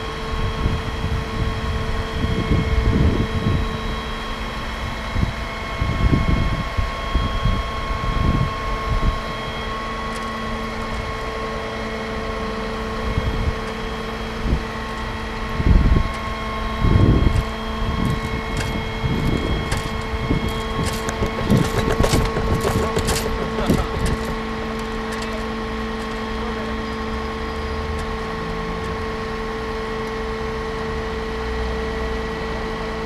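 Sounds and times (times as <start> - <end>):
hydraulic drive whine: 0.0 - 33.0
wind buffeting microphone: 15.4 - 25.0.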